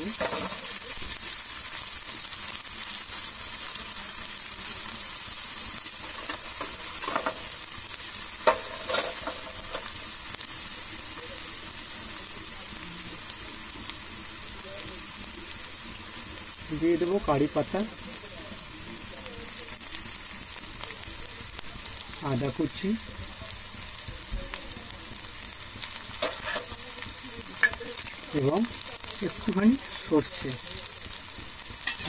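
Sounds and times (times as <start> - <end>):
metal spatula stirring: 0.0 - 0.8, 6.0 - 7.6, 8.4 - 10.0, 25.9 - 26.8, 27.5 - 30.2, 31.8 - 32.0
onions sizzling in hot oil: 0.0 - 32.0.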